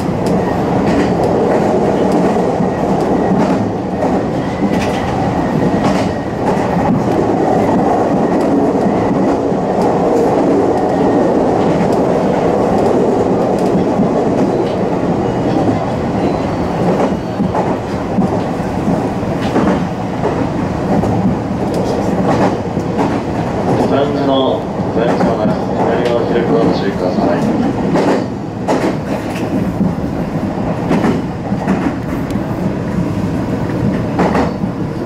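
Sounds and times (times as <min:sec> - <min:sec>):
sharp rail clicks: 0:00.0 - 0:14.8, 0:16.9 - 0:24.0, 0:25.0 - 0:29.9, 0:33.6 - 0:34.7
train wheels rumbling on rail: 0:00.0 - 0:35.0.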